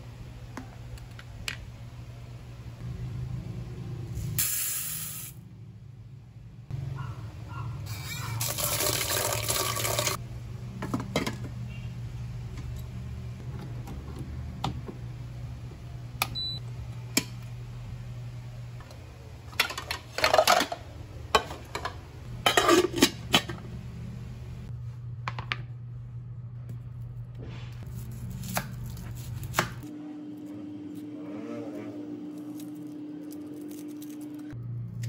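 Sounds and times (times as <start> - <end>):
low steady hum: 0.0 - 4.4, 8.9 - 35.0
tap water running into pot: 8.4 - 10.2
kitchenware clinking: 19.5 - 23.6.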